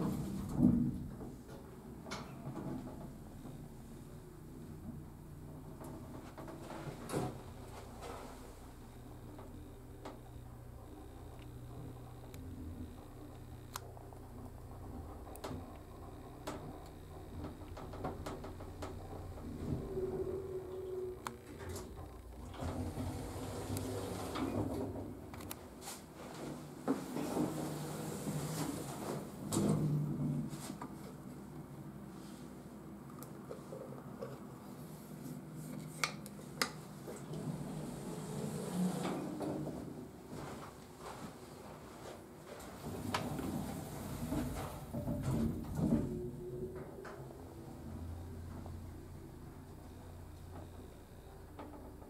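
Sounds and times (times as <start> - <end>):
elevator hum: 0.0 - 35.6, 36.4 - 52.0
steady tone: 18.6 - 22.6.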